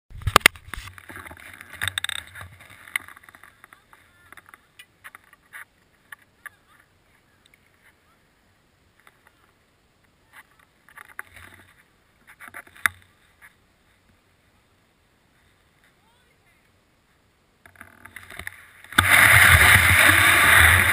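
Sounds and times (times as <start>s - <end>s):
skis and poles clicking on snow: 0.1s - 8.0s, 10.2s - 14.2s, 17.6s - 20.9s.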